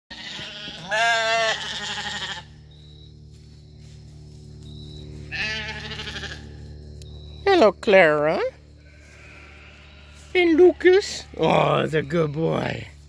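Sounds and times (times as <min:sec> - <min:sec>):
sheep bleating: 0:00.1 - 0:02.6, 0:05.3 - 0:06.6, 0:08.8 - 0:13.0.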